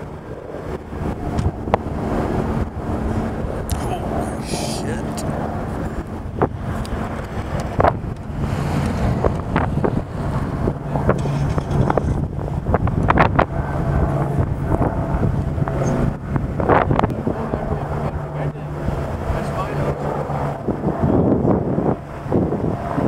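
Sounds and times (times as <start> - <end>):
low engine hum: 0.0 - 23.0
wind buffeting microphone: 0.0 - 23.0.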